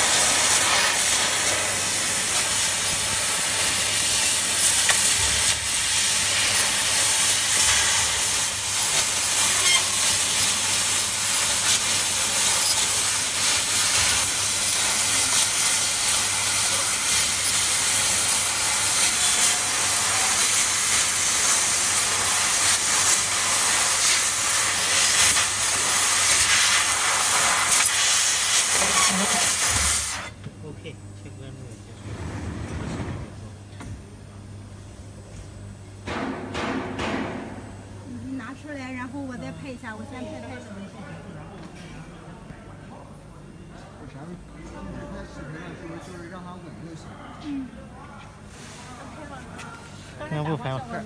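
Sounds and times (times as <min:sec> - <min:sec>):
hiss of assist gas: 0:00.0 - 0:30.3.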